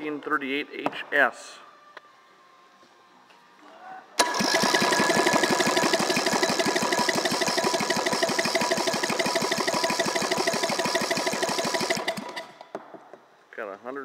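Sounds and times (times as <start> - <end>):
engine running with whine: 4.2 - 12.5
electric starter cranking engine: 4.2 - 12.7.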